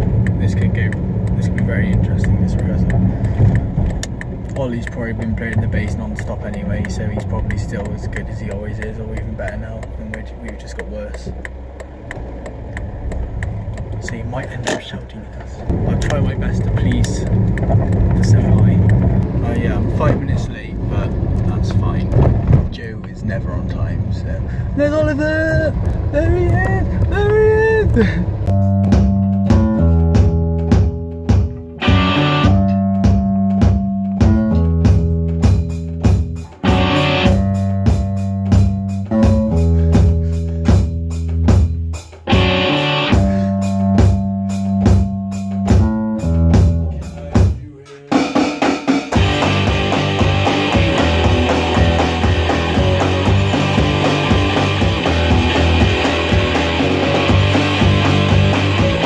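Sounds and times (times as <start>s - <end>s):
band rehearsing: 24.4s - 59.0s
rock music with electric guitar: 28.5s - 47.4s, 49.1s - 59.0s.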